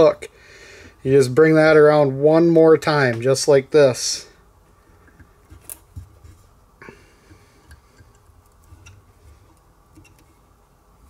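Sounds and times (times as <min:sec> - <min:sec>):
wire wrapping clicks: 0:05.0 - 0:06.1, 0:07.6 - 0:10.3.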